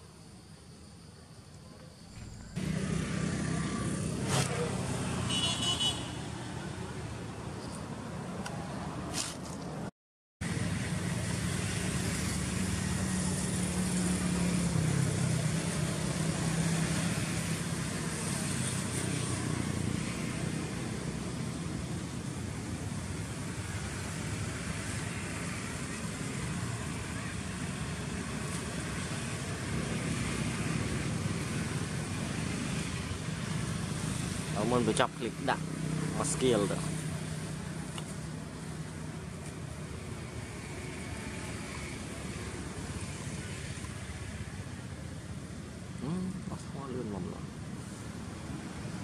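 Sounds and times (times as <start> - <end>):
outdoor background hiss: 0.0 - 8.9
vehicle engine humming: 2.1 - 8.9.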